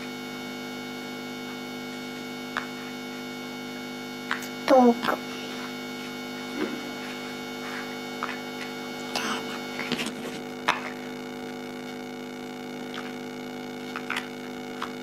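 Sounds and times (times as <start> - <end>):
electrical hum: 0.0 - 15.0.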